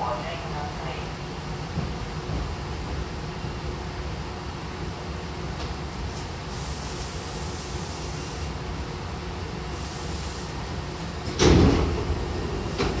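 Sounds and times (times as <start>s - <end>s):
train low hum: 0.0s - 13.0s
train doors sliding open: 9.7s - 13.0s.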